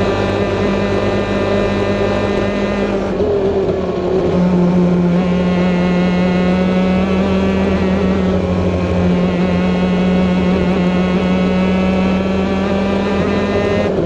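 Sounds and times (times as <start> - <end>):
kart engines high-revving: 0.0 - 14.0.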